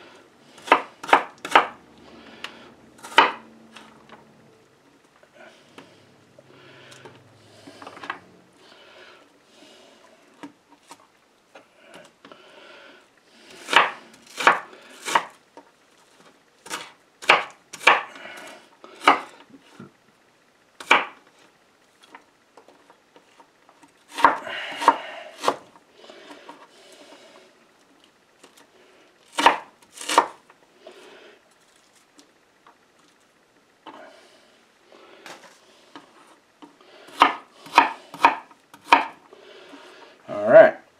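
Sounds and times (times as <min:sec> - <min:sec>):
knife chopping on wooden board: 0:00.6 - 0:01.8, 0:03.0 - 0:03.4, 0:13.6 - 0:15.4, 0:16.6 - 0:18.2, 0:19.0 - 0:19.4, 0:20.8 - 0:21.2, 0:24.1 - 0:25.7, 0:29.3 - 0:30.4, 0:37.1 - 0:39.2.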